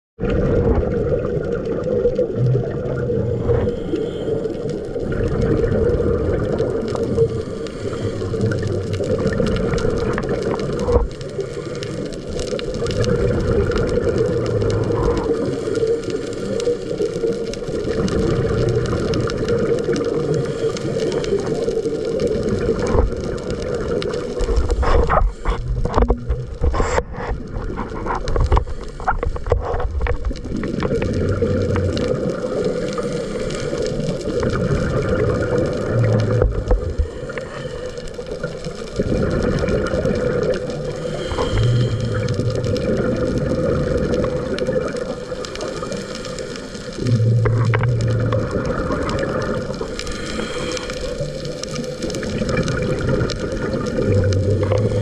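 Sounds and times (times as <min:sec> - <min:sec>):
underwater water rushing rumble: 0:00.2 - 0:55.0.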